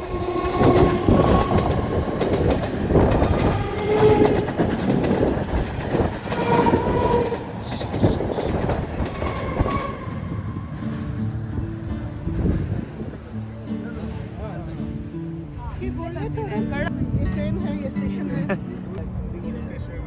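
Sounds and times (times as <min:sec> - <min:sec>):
train wheels clattering: 0:00.0 - 0:11.0.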